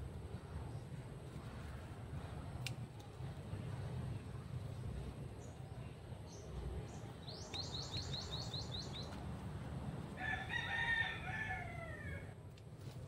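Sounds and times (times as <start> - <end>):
rooster crowing: 10.2 - 12.4.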